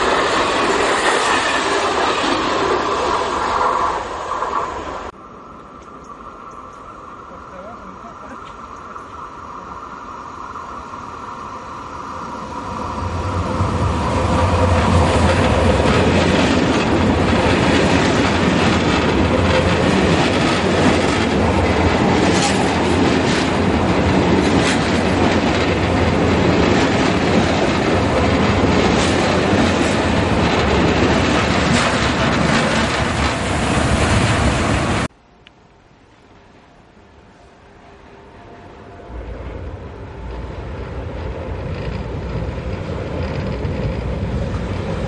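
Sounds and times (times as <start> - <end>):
train passing at speed: 0.0 - 45.0
wheels clicking over rail joints: 41.5 - 45.0.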